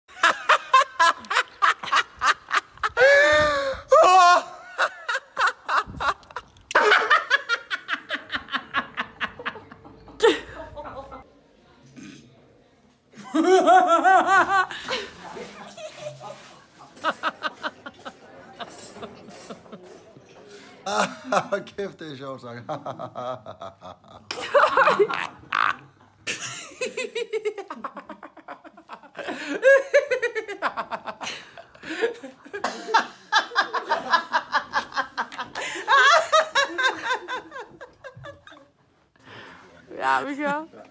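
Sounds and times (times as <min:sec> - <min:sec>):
men laughing heartily: 0:00.1 - 0:11.2, 0:13.2 - 0:15.2, 0:22.7 - 0:38.8
person laughing heartily: 0:00.2 - 0:11.1.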